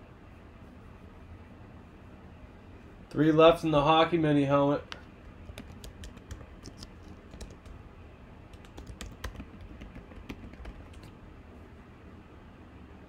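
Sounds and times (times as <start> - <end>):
computer keyboard typing: 5.2 - 7.8, 8.5 - 11.2.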